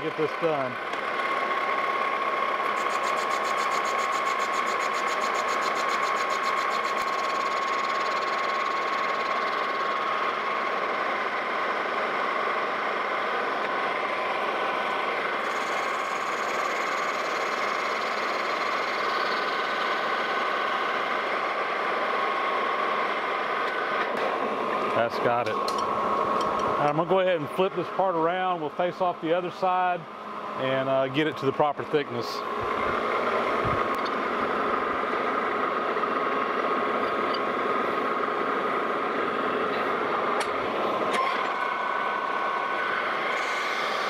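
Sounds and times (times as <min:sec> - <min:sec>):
metal lathe whine: 0:00.0 - 0:44.0
tool cutting metal: 0:02.6 - 0:10.0, 0:15.4 - 0:20.1, 0:39.7 - 0:44.0.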